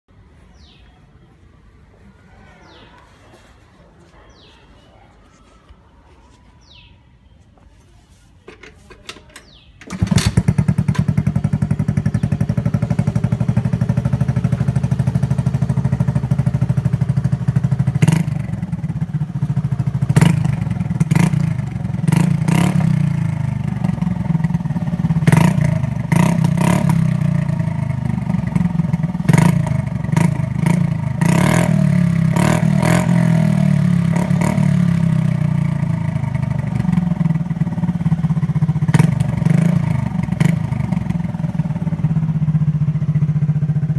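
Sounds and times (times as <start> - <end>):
scooter engine idling and revving: 9.0 - 43.9.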